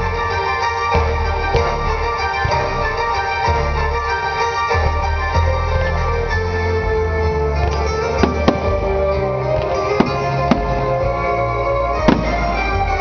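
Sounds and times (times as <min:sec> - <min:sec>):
music with sustained tones: 0:00.0 - 0:13.0
firework shells bursting: 0:08.2 - 0:09.0, 0:09.6 - 0:11.1, 0:12.0 - 0:13.0.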